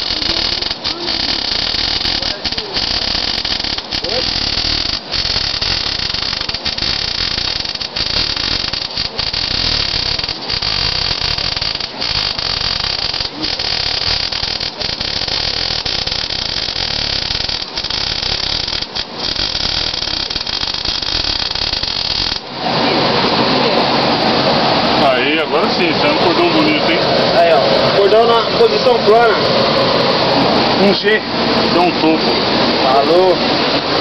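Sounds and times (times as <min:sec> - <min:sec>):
welding arc buzzing: 0:00.0 - 0:22.7.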